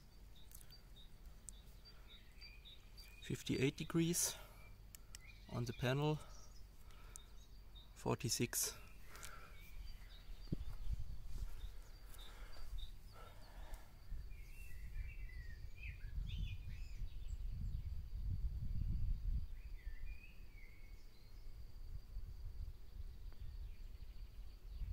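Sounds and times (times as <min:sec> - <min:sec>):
birds chirping: 0:00.0 - 0:18.0, 0:19.3 - 0:21.6
wind buffeting microphone: 0:09.6 - 0:13.2, 0:14.0 - 0:20.2.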